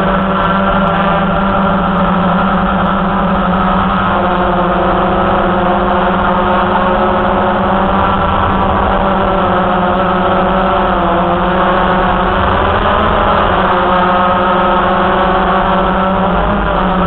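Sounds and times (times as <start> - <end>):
quadcopter propellers humming: 0.0 - 17.0.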